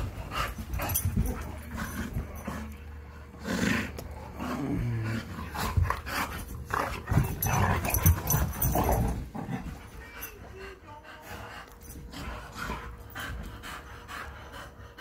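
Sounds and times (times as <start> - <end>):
dogs growling: 0.0 - 15.0
dogs breathing roughly: 10.0 - 15.0.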